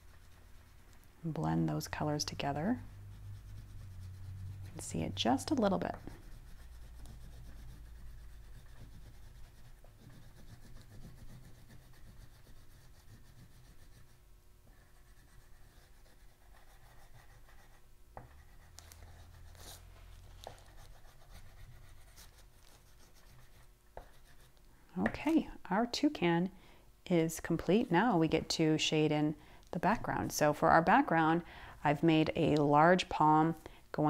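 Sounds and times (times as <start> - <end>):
oil pastel scratching on paper: 0.0 - 1.0, 1.7 - 24.6.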